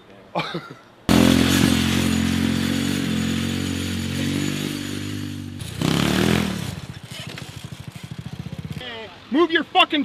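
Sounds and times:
small quad engine running: 1.1 - 8.8.

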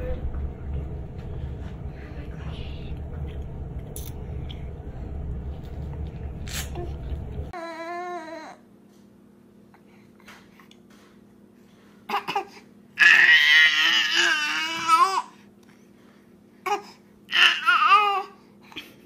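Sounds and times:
baby crying: 16.7 - 18.4.

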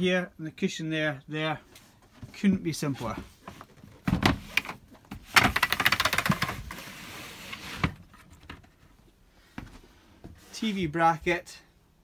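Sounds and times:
wooden slats clattering: 3.6 - 6.8.

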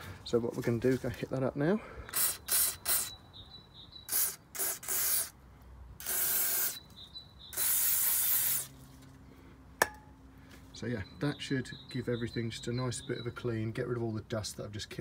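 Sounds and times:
aerosol spray hissing: 2.2 - 3.1, 4.1 - 5.3, 6.0 - 6.8, 7.6 - 8.7.

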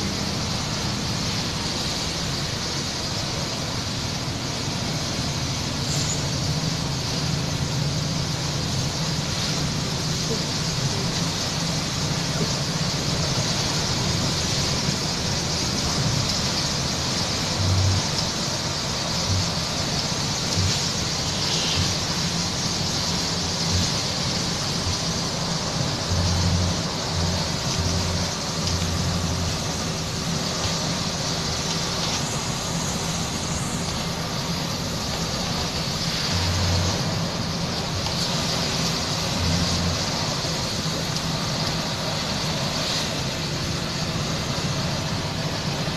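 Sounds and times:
bus engine hum: 0.0 - 45.9
tyres hissing on wet road: 0.0 - 45.9.

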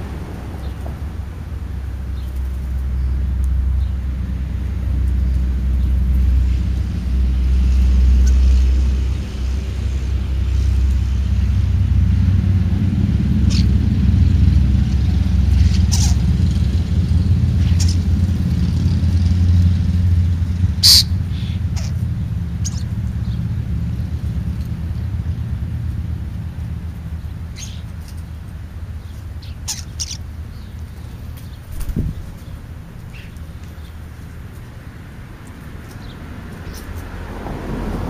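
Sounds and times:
steady low rumble: 0.0 - 38.0.

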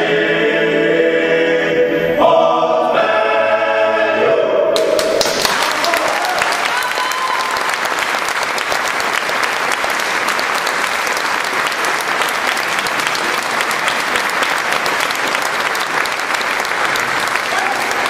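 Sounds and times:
a cappella singing: 0.0 - 4.8
audience applauding: 4.8 - 18.0.

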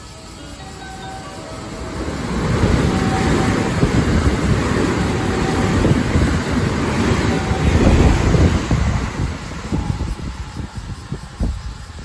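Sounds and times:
train passing at speed: 0.0 - 12.0.

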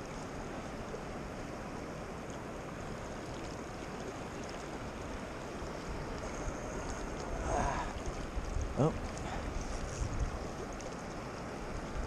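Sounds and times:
fast river water rushing: 0.0 - 12.0.

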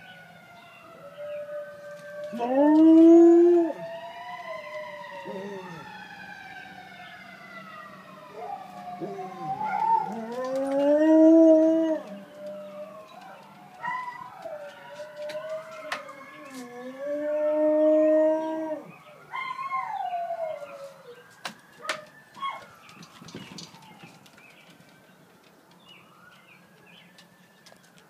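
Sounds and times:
distant sirens wailing: 0.0 - 28.0
dog howling: 1.0 - 5.8, 8.3 - 21.2.

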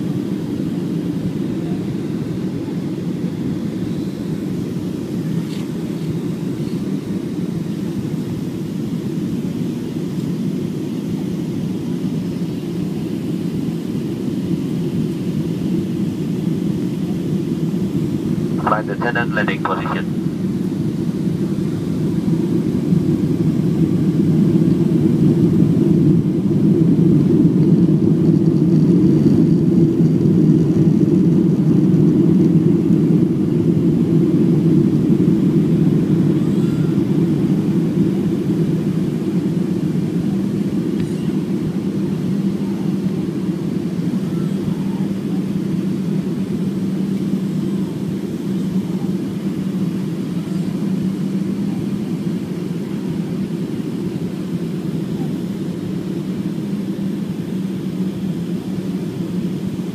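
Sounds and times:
airliner cabin engine rumble: 0.0 - 59.9
low steady hum: 18.6 - 20.2.

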